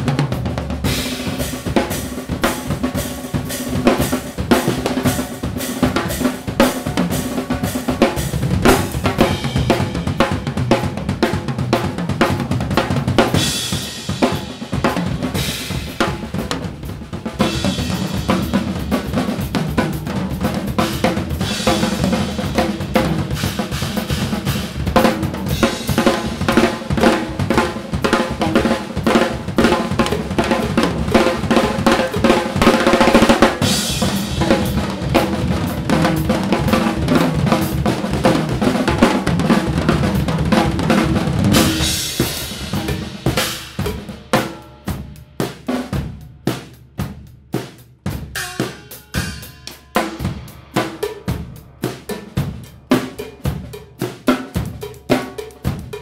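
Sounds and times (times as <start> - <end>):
drum kits playing: 0.0 - 56.0
cymbals ringing: 48.4 - 51.8.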